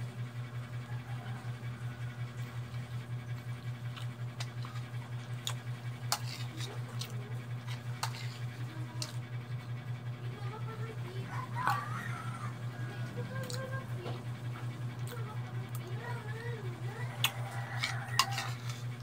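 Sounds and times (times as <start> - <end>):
pulsing low hum: 0.0 - 19.0
cutlery clinking on ceramic bowl: 17.8 - 18.8.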